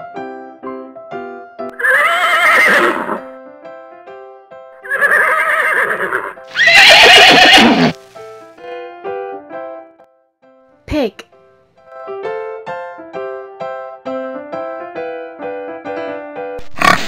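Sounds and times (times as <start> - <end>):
light piano tune: 0.0 - 1.8, 3.2 - 4.9, 8.0 - 16.6
horse whinnying: 1.7 - 3.2, 4.8 - 8.0, 16.6 - 17.0.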